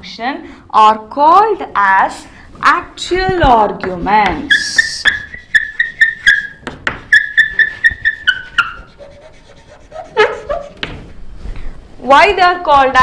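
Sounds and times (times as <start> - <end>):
chalk tapping: 3.1 - 11.1
chalk squeaking on chalkboard: 3.8 - 11.2.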